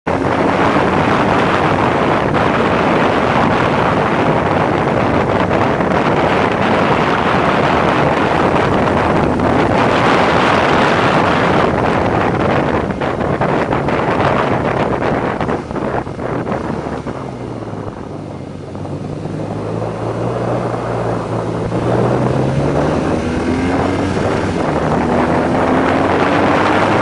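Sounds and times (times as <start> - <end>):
motorcycle running: 0.0 - 27.0
wind rushing over microphone: 0.0 - 27.0.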